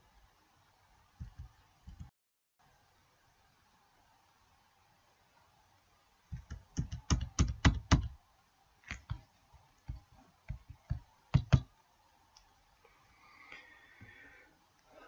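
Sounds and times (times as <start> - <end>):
computer keyboard tapping: 1.2 - 2.1, 6.3 - 8.2, 8.8 - 11.7.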